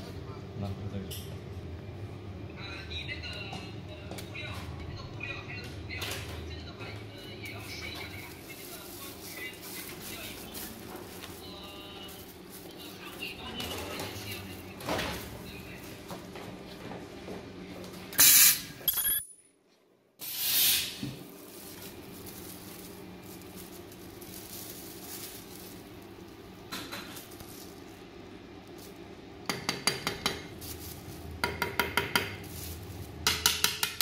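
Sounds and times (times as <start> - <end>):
ultrasonic plastic welder bursts: 18.2 - 18.6.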